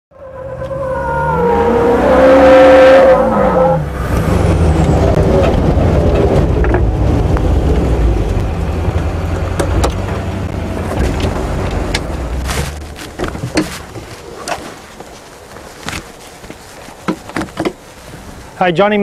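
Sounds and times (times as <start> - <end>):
diesel engine rumbling: 0.2 - 18.8.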